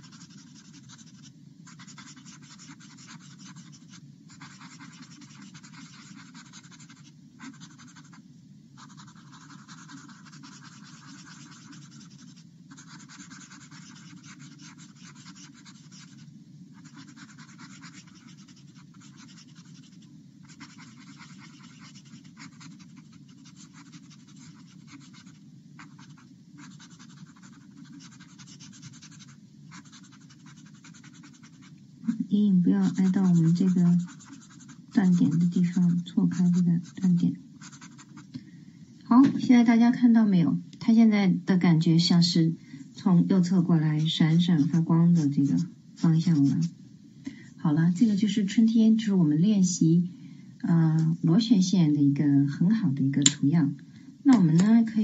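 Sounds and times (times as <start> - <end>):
shading tool rubbing on paper: 0.0 - 8.2, 8.8 - 38.2, 43.4 - 46.7
steady low hum: 0.0 - 55.0.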